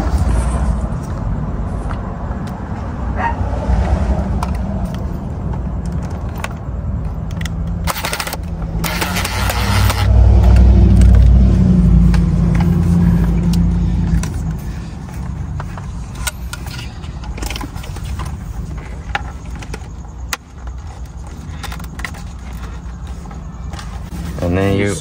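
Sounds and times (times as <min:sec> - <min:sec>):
plastic parts clicking: 0:04.3 - 0:11.3, 0:13.4 - 0:24.1.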